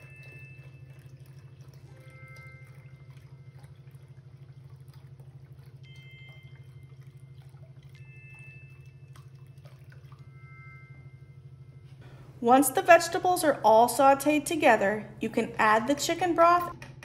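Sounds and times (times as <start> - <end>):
liquid pouring into a cup: 0.0 - 11.6
steady low hum: 0.0 - 17.0.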